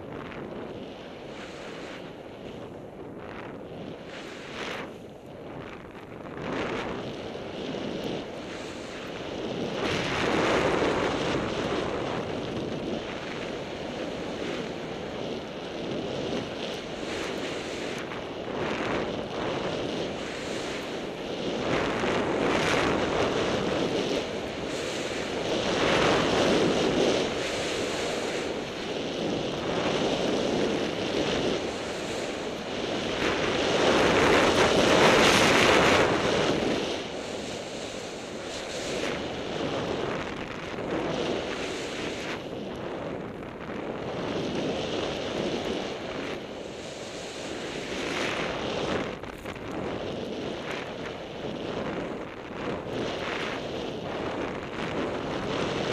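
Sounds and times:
wind buffeting microphone: 0.0 - 55.9
skis hissing through snow: 4.0 - 7.5, 8.1 - 15.0, 16.8 - 43.2, 44.0 - 51.0.

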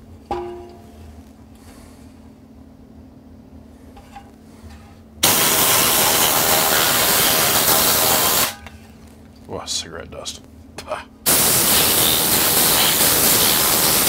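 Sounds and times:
compressed air gun hissing: 5.2 - 8.6, 11.3 - 14.0.

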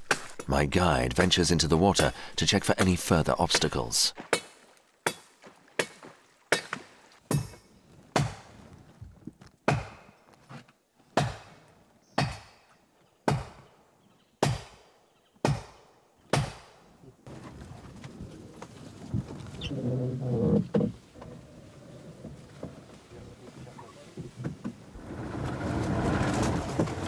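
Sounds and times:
blade chopping wood: 0.0 - 0.5, 2.8 - 8.5, 9.7 - 10.1, 11.2 - 11.6, 14.4 - 14.8, 15.4 - 16.8.

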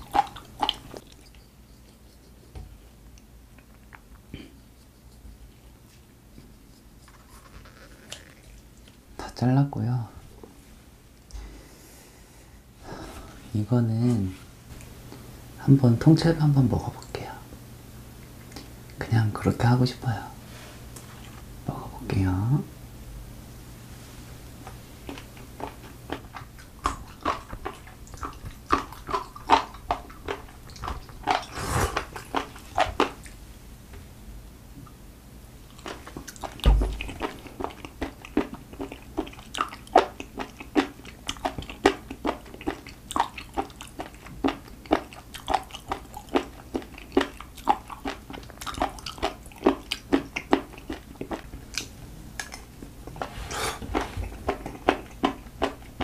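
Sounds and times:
wet chewing and mouth smacks: 0.0 - 9.0, 18.2 - 19.0, 25.0 - 33.4, 35.6 - 52.8, 53.8 - 56.0.

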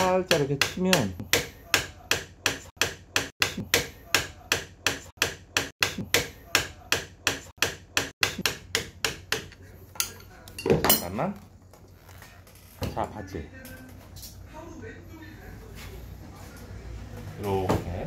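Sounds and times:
hammer tapping metal: 0.3 - 10.3.

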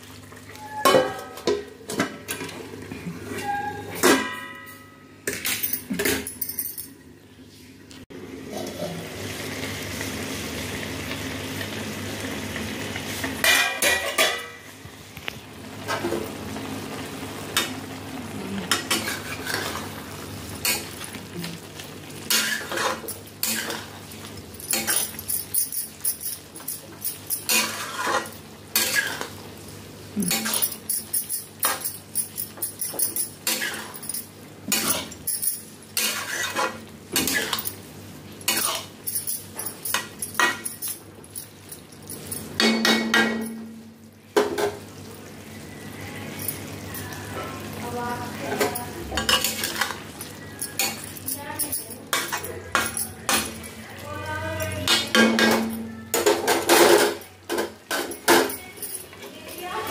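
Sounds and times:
food sizzling: 7.4 - 59.9
metal spatula scraping a pan: 18.7 - 20.0, 22.2 - 24.0, 27.4 - 29.4, 36.0 - 37.6, 48.5 - 50.0.

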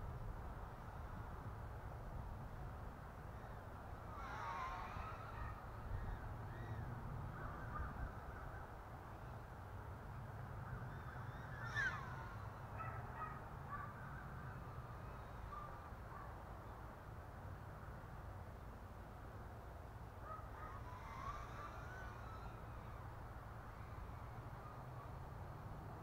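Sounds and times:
wind rumble on microphone: 0.0 - 16.3.

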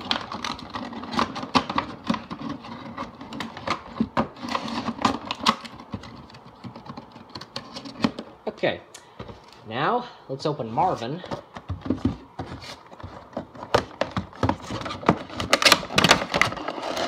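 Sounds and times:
cardboard and plastic packaging crinkling: 0.0 - 8.2, 10.8 - 17.0.

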